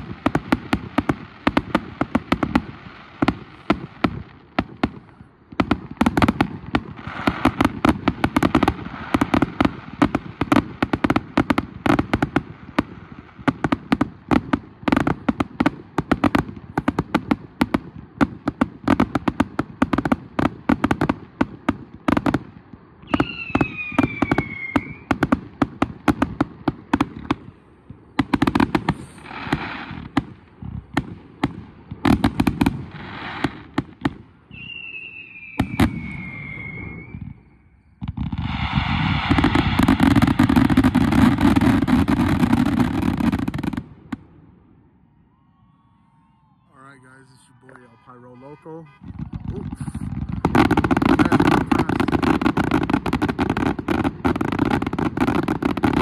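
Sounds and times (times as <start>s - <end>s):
firework bangs: 0.0s - 56.0s
falling firework whistle: 23.0s - 25.2s, 34.5s - 43.8s, 44.8s - 56.0s.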